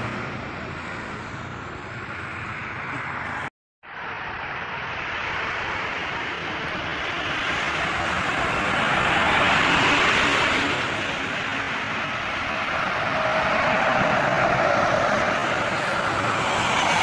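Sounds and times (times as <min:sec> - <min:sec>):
highway traffic passing: 0:00.0 - 0:17.0
truck passing: 0:00.0 - 0:17.0
coach engine whine: 0:04.2 - 0:17.0.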